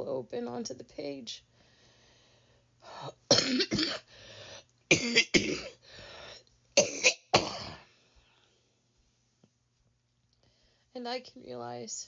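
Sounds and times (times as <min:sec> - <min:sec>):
woman coughing: 0:03.3 - 0:04.1, 0:04.9 - 0:05.8, 0:06.8 - 0:07.9
breath in: 0:04.1 - 0:04.7, 0:05.8 - 0:06.5.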